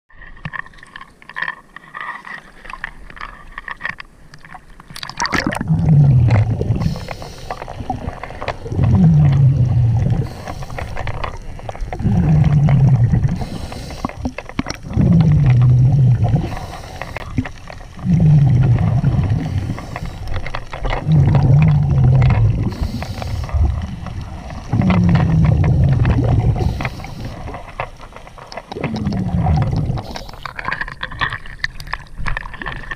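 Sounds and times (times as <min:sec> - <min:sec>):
diver breathing through regulator: 0:05.6 - 0:27.8, 0:28.8 - 0:30.6.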